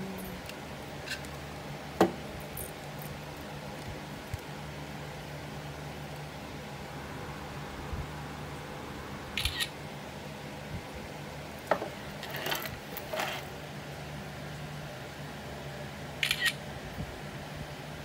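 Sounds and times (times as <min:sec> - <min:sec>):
steady low hum: 0:00.0 - 0:18.0
phone camera shutter: 0:09.4 - 0:09.7, 0:16.2 - 0:16.6.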